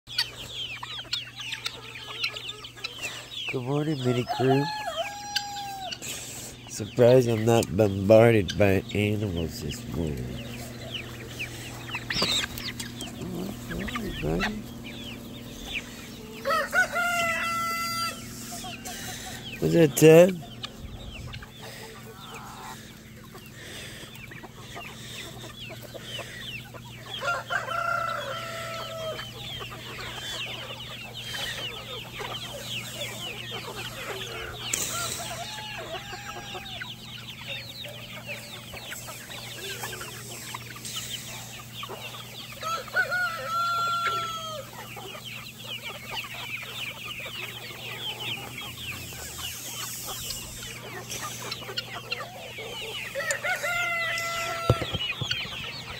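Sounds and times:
chickens clucking: 0.1s - 55.9s
rooster crowing: 4.0s - 6.0s, 16.2s - 19.0s, 27.2s - 29.4s, 34.7s - 36.8s, 42.5s - 44.8s, 53.0s - 55.1s.

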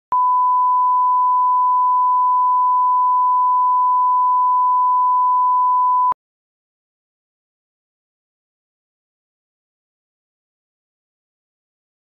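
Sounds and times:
steady test tone beep: 0.1s - 6.2s.

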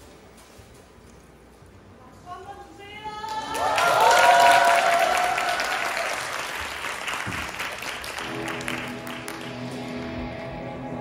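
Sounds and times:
audience clapping and cheering: 3.2s - 10.3s
people whooping: 3.3s - 6.6s.

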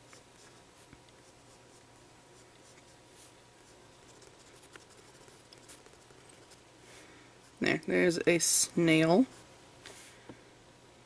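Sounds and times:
pencil scratching on paper: 0.0s - 6.6s.

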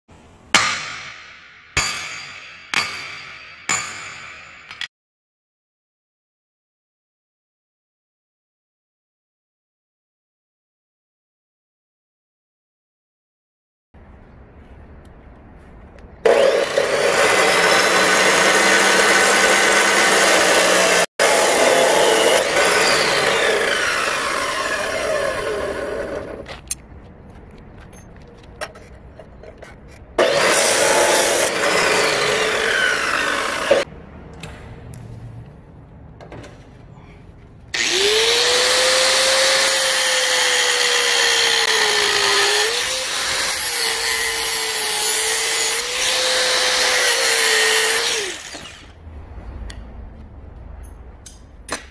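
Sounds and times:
chop saw cutting steel: 16.2s - 26.8s, 30.2s - 33.9s, 37.8s - 49.0s
angle grinder grinding steel: 16.3s - 26.4s, 30.2s - 33.9s, 37.8s - 49.0s.

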